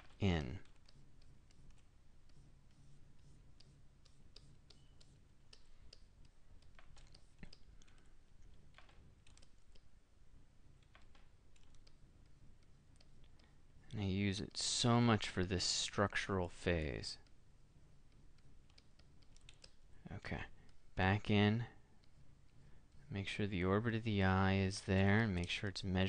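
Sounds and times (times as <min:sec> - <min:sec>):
computer keys clicking: 0:00.0 - 0:09.9, 0:10.8 - 0:14.0, 0:18.1 - 0:19.8
low steady hum: 0:00.0 - 0:26.0.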